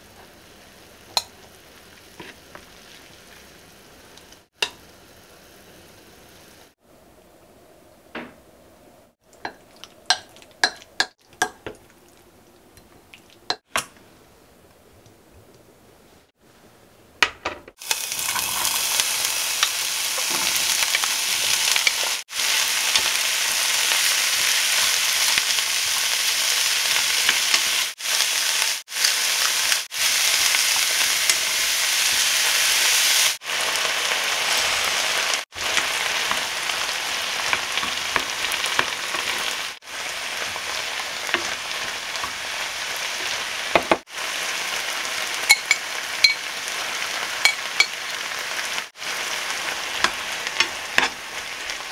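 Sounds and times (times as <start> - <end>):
vegetables sizzling in frying pan: 0.0 - 6.8, 17.8 - 51.9.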